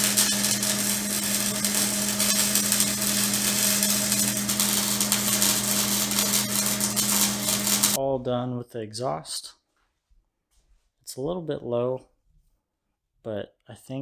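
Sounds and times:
low electrical hum: 0.0s - 8.0s
welder arc crackling: 0.0s - 8.0s.

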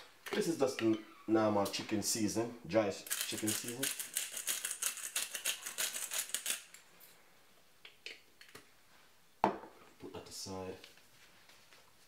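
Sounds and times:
seasoning shaker rattling: 3.0s - 6.8s.

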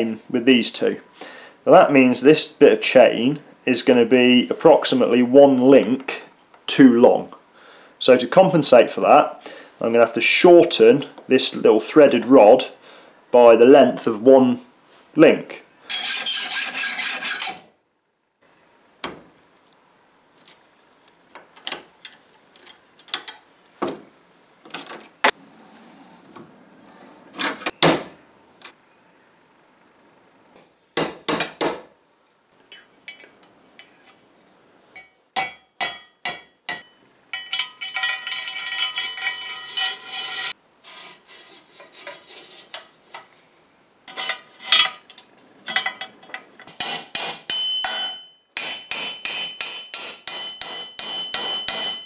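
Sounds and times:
rasping metal-on-metal strokes: 15.9s - 17.6s, 35.4s - 42.9s
hacksaw cutting steel rod: 15.9s - 17.7s, 38.6s - 42.9s, 46.7s - 52.0s
metal clicks and knocks: 37.4s - 39.2s.

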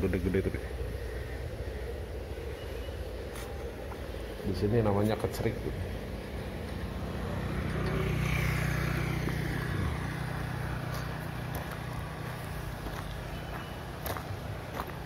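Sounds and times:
motorcycle engine passing by: 6.0s - 13.4s.

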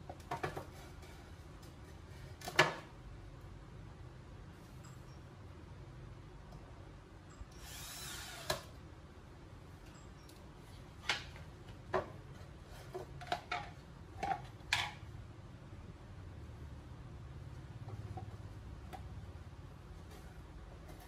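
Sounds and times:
cabinet parts clicking and knocking: 0.0s - 0.8s, 2.4s - 2.9s, 11.0s - 15.1s.

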